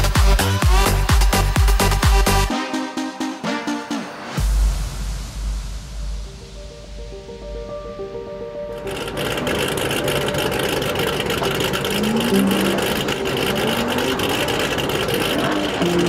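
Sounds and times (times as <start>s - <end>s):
road noise: 6.2s - 16.0s
car engine accelerating: 8.7s - 16.0s.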